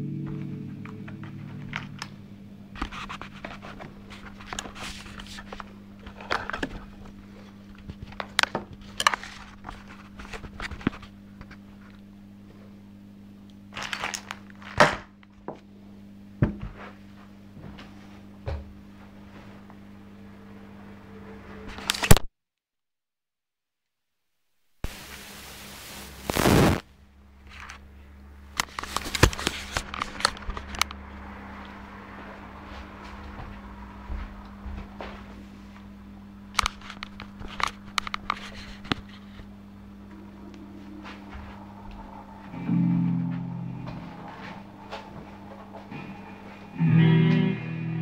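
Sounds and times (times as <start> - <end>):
guitar chord ringing: 0.0 - 2.8, 40.0 - 48.0
steady low hum: 0.0 - 21.9, 24.5 - 48.0.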